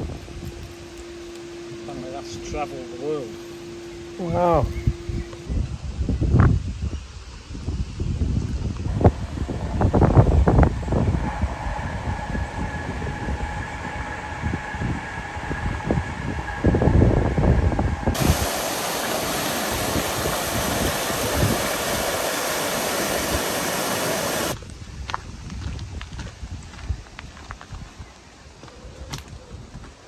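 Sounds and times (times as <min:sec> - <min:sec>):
wind rumbling on microphone: 0:00.0 - 0:01.9, 0:04.2 - 0:30.0
faint steady hum: 0:08.6 - 0:24.6
water gushing through gates: 0:08.9 - 0:24.6.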